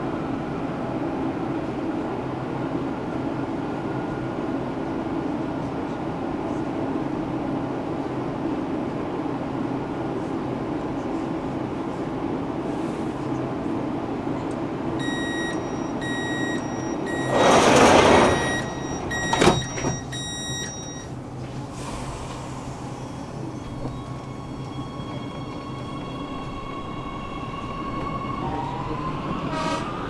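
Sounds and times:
high warning beeps: 15.0 - 21.1
train doors sliding: 15.0 - 25.2, 26.4 - 30.0
doors shutting thud: 17.1 - 20.7.

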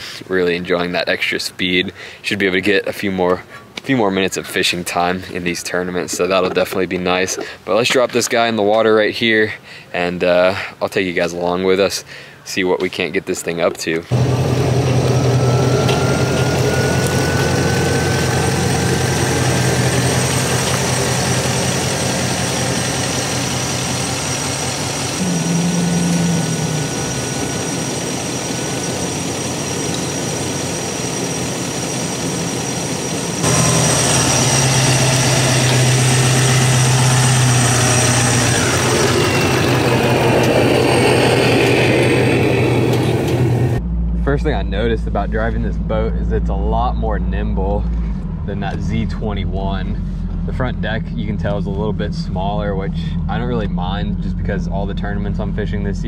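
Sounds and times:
faint rising whine: 14.1 - 56.0
pickup truck engine running: 14.1 - 56.0.

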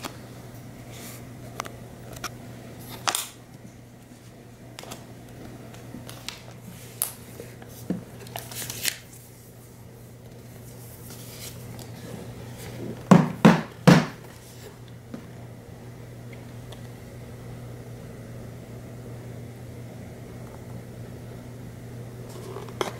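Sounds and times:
steady low hum: 0.0 - 22.9
paper tab rustling: 6.1 - 9.2.

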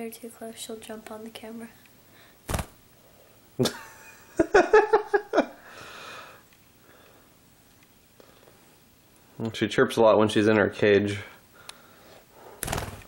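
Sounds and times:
breathy hiss: 1.7 - 3.4, 5.6 - 8.8, 11.1 - 13.0
thump on camera: 2.5 - 2.8.

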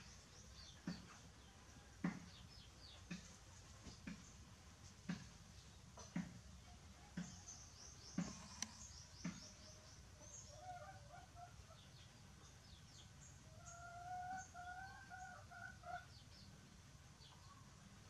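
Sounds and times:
small birds twittering: 0.0 - 18.0
soft clicks: 8.2 - 8.8
chicken calling: 10.5 - 11.8, 13.5 - 16.1.

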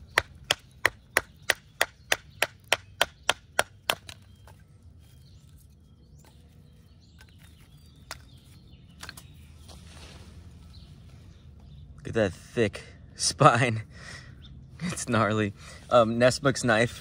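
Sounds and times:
wooden sticks clacking: 0.0 - 4.6, 7.2 - 9.4.

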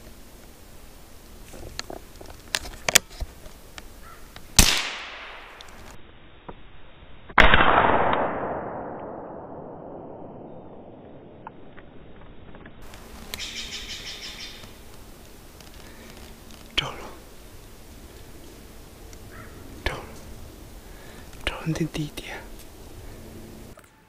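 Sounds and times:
gunshots with echo: 7.4 - 11.0.

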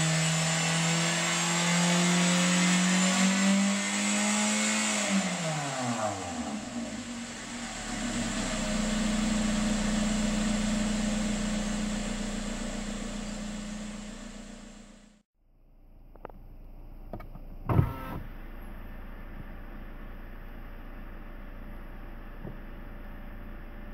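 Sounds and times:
car engine revving and idling: 0.0 - 15.2.

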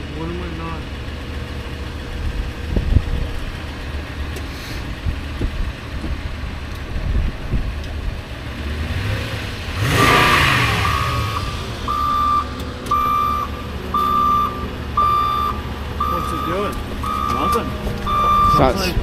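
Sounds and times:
truck engine idling: 0.0 - 8.4, 10.5 - 19.0
engine noise rising in pitch: 8.5 - 19.0
reversing beep: 10.9 - 18.8.

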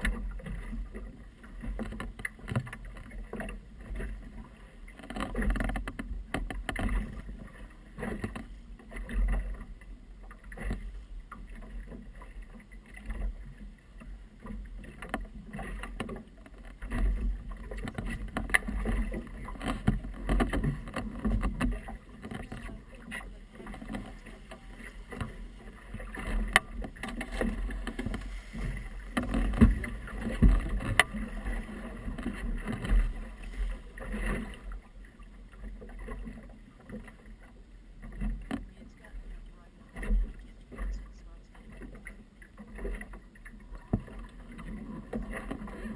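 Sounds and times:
water splashing against boat hull: 0.0 - 45.9
knocks on hull: 5.0 - 9.6, 14.9 - 34.6.

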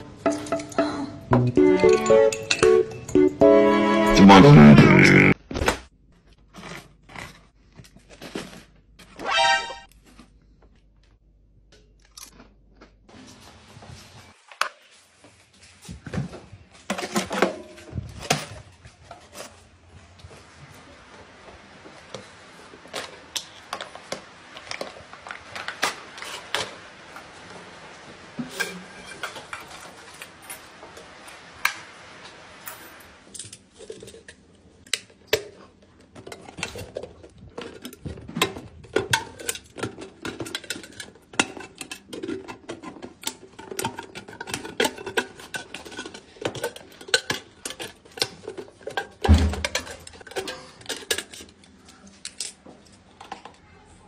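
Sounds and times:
can opener clicking and scraping: 36.6 - 51.5.

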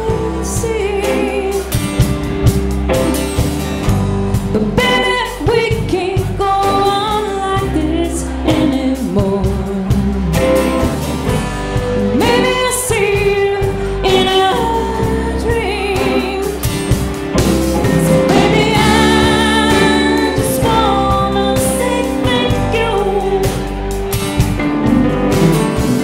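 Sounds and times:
woman singing: 0.0 - 1.9, 4.4 - 10.8, 11.8 - 16.9, 17.8 - 23.8
live band playing: 0.0 - 26.0.

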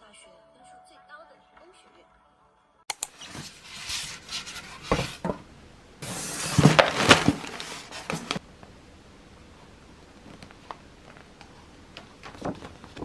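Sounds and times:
plastic bag rustling: 6.0 - 8.4.

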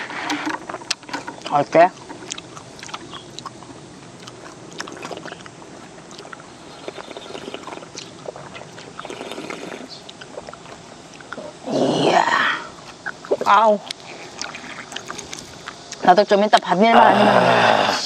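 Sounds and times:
drink sloshing and swallowing: 0.0 - 11.4.

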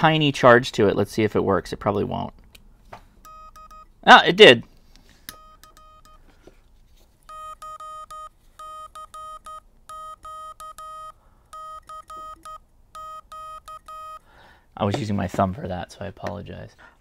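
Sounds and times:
buzzy morse code beeps: 3.2 - 3.9, 5.4 - 6.2, 7.3 - 14.3.

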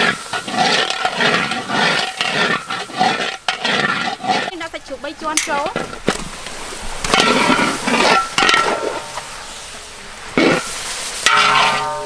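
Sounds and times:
meat sizzling in hot oil: 0.0 - 4.4, 6.3 - 12.0
sauce bubbling: 0.0 - 5.1.

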